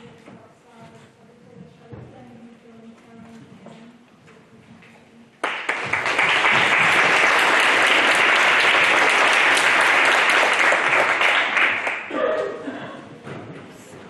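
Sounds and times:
audience applauding: 0:05.4 - 0:12.2.

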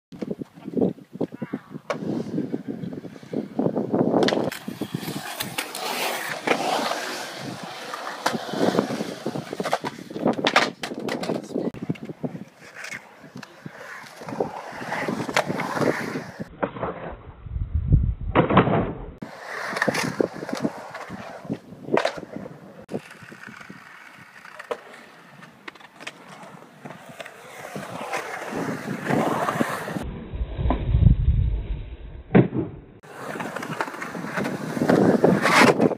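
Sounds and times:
skateboard wheels rolling on concrete: 0:00.1 - 0:17.3, 0:17.9 - 0:35.9
skateboard clacking on concrete: 0:04.2 - 0:16.4
skateboards clacking on concrete: 0:04.2 - 0:16.5, 0:19.2 - 0:30.0, 0:33.0 - 0:35.9.

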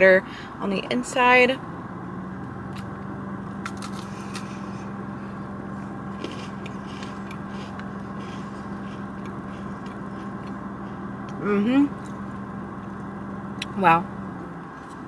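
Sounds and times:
low hum inside car: 0:00.0 - 0:15.0
chewing crunchy cookie: 0:06.0 - 0:11.4.

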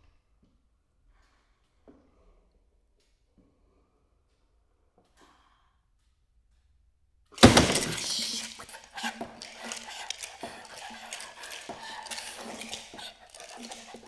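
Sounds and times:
loud crash: 0:07.4 - 0:08.6
clatter of small clicks and scrapes: 0:07.4 - 0:14.0.

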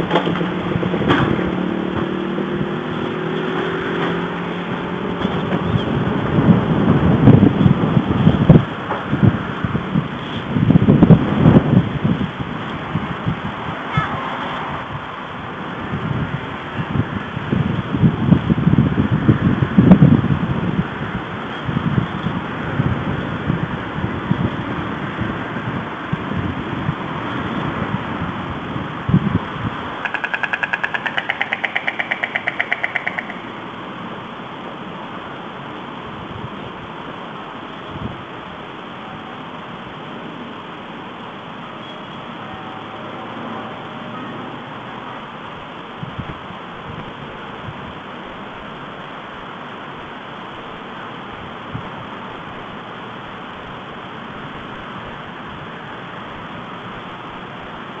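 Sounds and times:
wind noise: 0:00.0 - 0:42.6, 0:45.2 - 0:58.0
steady microphone hiss: 0:00.0 - 0:58.0
stork bill-clattering: 0:30.0 - 0:33.6.

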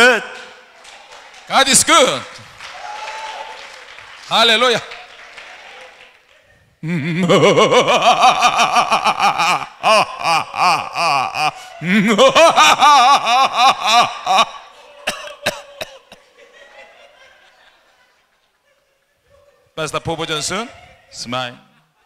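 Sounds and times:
man laughing into microphone: 0:06.8 - 0:17.6.

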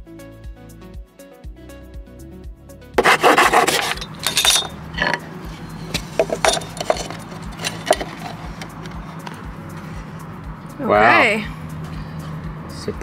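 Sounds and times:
hand saw cutting wood: 0:03.0 - 0:05.2.

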